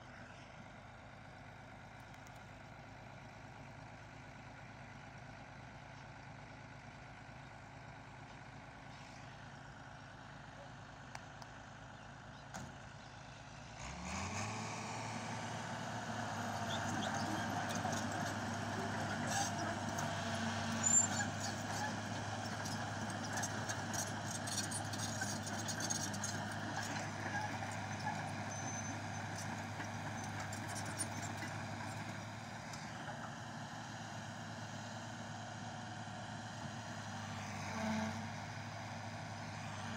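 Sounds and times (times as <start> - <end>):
excavator diesel engine: 0.0 - 39.9
steel tracks clanking and squeaking: 20.8 - 22.0.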